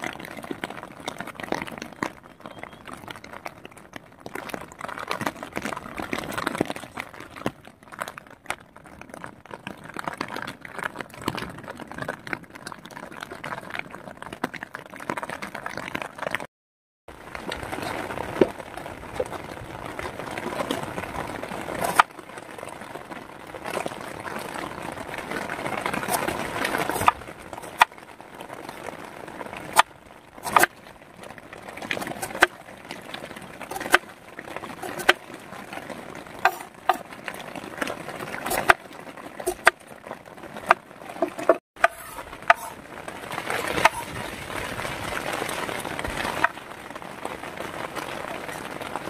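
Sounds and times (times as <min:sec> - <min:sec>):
rain hissing: 0:17.1 - 0:49.0.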